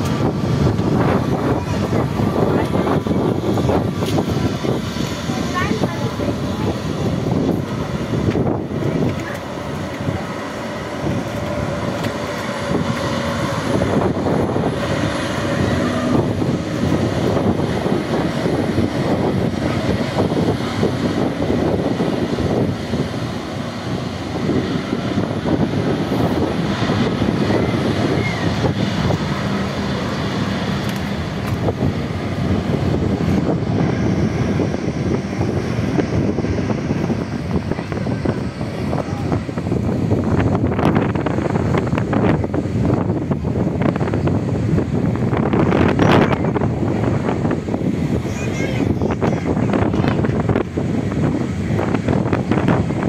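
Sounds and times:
jet engines running: 0:00.0 - 0:53.0.

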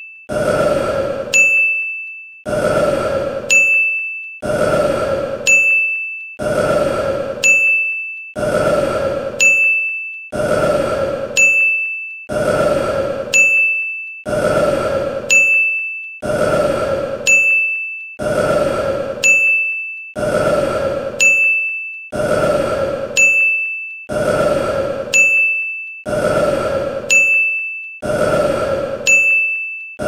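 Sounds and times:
bright ding: 0:01.4 - 0:02.0.

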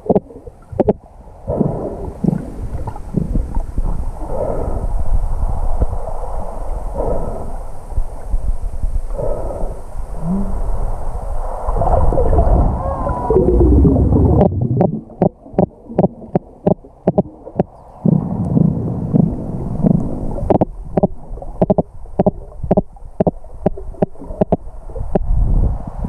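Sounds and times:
gurgling water: 0:00.0 - 0:04.7, 0:10.2 - 0:26.0
muffled underwater rumble: 0:00.0 - 0:26.0
short warbling glides: 0:11.7 - 0:17.8.

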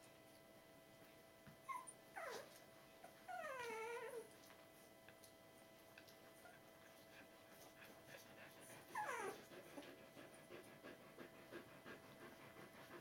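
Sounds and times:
dog whimper falling in pitch: 0:01.6 - 0:04.3, 0:08.9 - 0:09.4
dog panting: 0:06.9 - 0:13.0.

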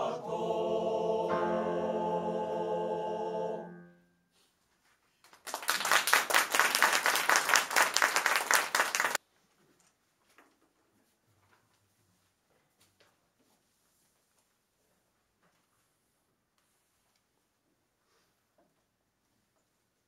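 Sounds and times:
men's choir singing: 0:00.0 - 0:03.8
audience applauding: 0:05.3 - 0:09.2.

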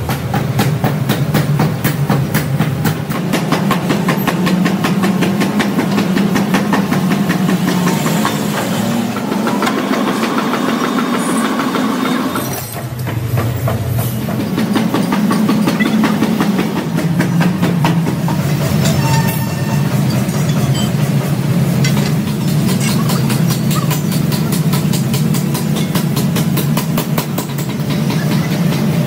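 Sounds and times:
metalworking machinery clattering: 0:00.0 - 0:29.0.

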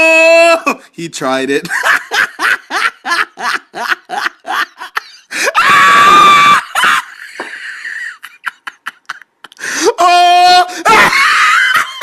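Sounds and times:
high-pitched scream: 0:05.6 - 0:06.8
woman laughing: 0:06.8 - 0:09.6.

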